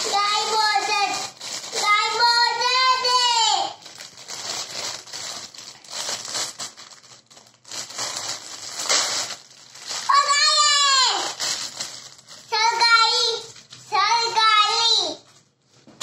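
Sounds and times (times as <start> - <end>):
child exclaiming: 0.0 - 3.8, 10.0 - 11.4, 12.5 - 15.2
packaging crinkling and rustling: 0.0 - 13.9.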